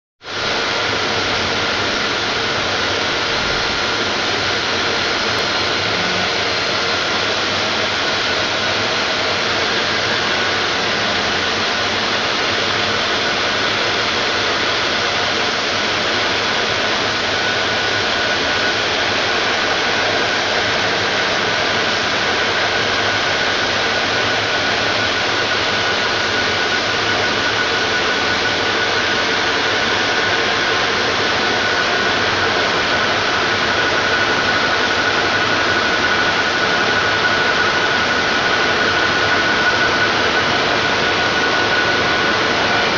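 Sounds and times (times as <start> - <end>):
faint machine whine: 0.3 - 42.9.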